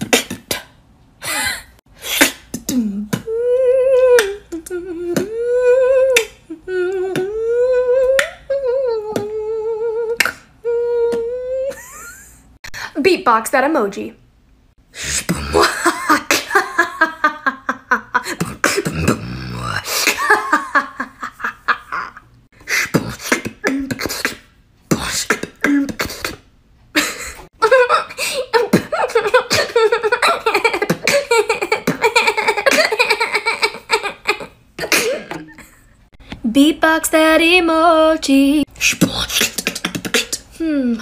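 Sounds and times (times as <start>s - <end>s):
woman beatboxing: 0.0s - 0.8s, 2.0s - 11.7s, 22.8s - 26.4s, 36.4s - 41.0s
woman singing pitched vocals: 2.2s - 12.2s, 36.2s - 41.0s.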